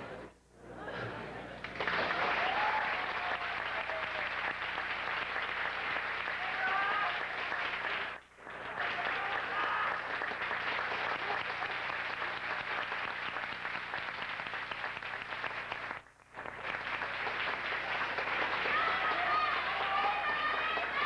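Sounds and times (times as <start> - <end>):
crowd applauding: 1.6 - 21.0.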